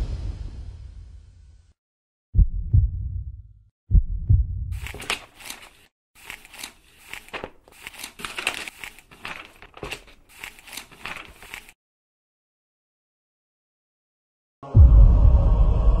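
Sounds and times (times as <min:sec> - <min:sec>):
deep heartbeat-like booms: 0:02.4 - 0:04.8
paper crinkling and rustling: 0:04.8 - 0:11.8.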